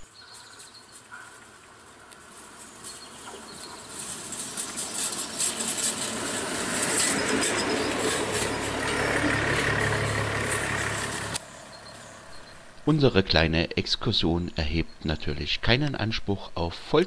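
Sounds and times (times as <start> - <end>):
low diesel engine hum: 0.0 - 17.0
train wheels rattling on track: 0.4 - 11.4.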